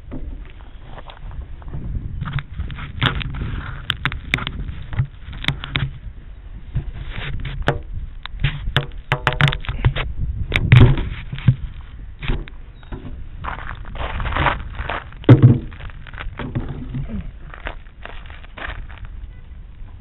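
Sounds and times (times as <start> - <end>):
clicks and knocks: 7.4 - 11.6
heavy thump: 15.2 - 17.1.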